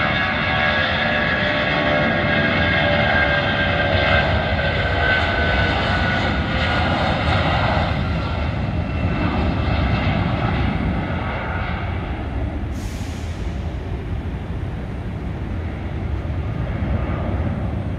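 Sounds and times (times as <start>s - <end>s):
jet engines at takeoff thrust: 0.0s - 17.9s.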